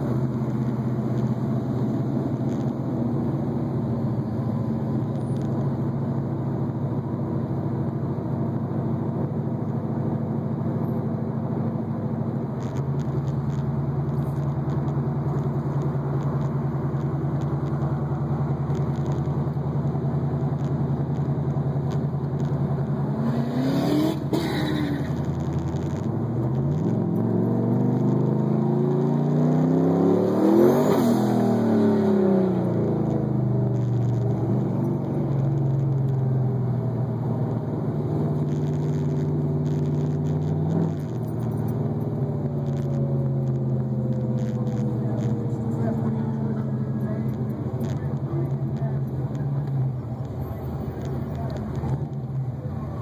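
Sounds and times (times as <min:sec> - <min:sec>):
car engine droning: 0:00.0 - 0:53.0
engine revving: 0:22.4 - 0:53.0.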